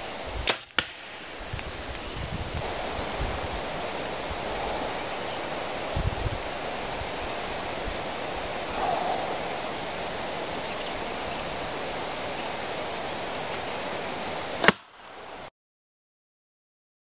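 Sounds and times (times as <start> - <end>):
outdoor background hiss: 0.0 - 15.5
bow shot crack: 0.4 - 1.1, 14.6 - 15.0.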